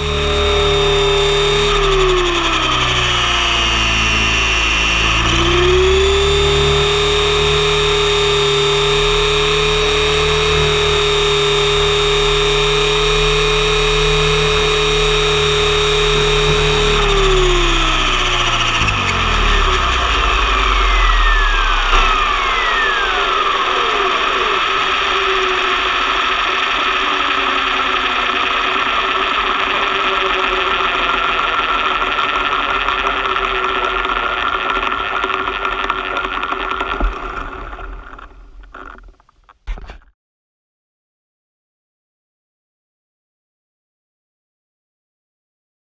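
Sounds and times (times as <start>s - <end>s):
model helicopter rotor whining: 0.0s - 39.2s
falling whistles and rushing: 0.3s - 7.0s, 17.0s - 27.2s.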